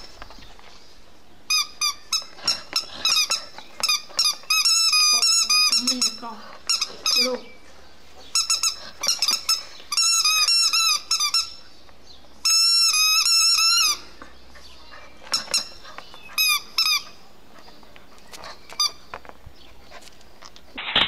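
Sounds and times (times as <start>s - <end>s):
squeaky toy squeaking: 1.5s - 7.5s, 8.3s - 11.6s, 12.4s - 14.1s, 15.2s - 17.2s, 18.3s - 19.1s.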